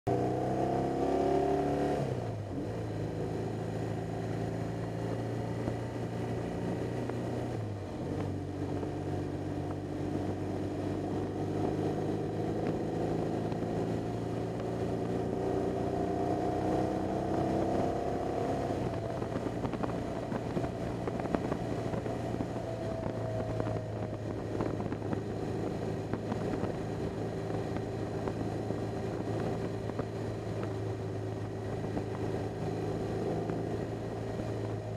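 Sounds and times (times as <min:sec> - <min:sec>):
motorcycle engine running: 0:00.1 - 0:34.9.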